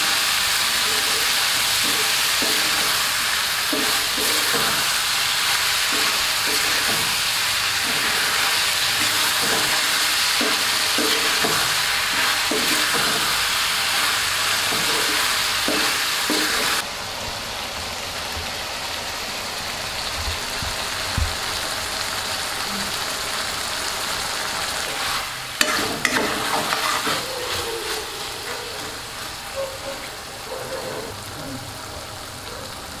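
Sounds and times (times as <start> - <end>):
curry sizzling in wok: 0.0 - 33.0
spatula scraping metal pan: 0.8 - 16.8, 24.9 - 29.1.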